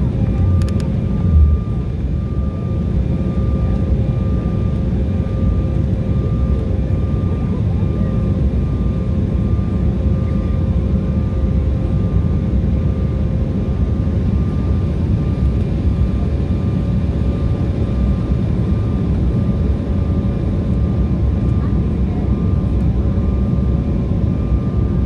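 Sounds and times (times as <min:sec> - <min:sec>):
engine and airflow rumble: 0:00.0 - 0:25.0
faint steady whining tones: 0:00.0 - 0:25.0.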